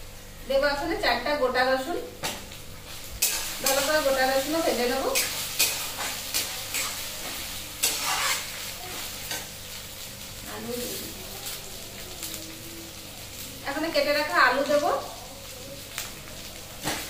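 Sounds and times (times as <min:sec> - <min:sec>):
garlic and onion sizzling in oil: 0:00.0 - 0:17.0
metal spatula scraping pan: 0:05.1 - 0:08.7.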